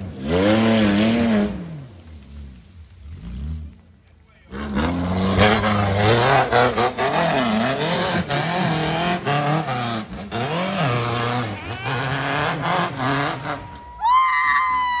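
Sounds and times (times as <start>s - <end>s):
buggy engine revving: 0.0s - 14.8s.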